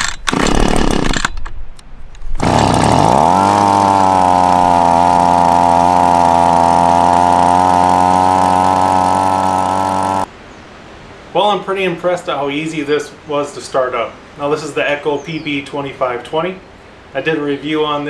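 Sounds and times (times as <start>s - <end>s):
leaf blower engine running: 2.4s - 10.3s
pull-start rope stroke: 2.4s - 10.3s.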